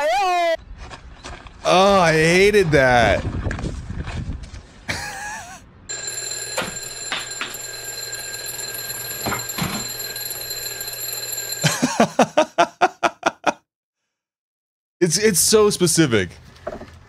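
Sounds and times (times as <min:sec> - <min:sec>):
alarm clock ringing: 0:05.9 - 0:12.1.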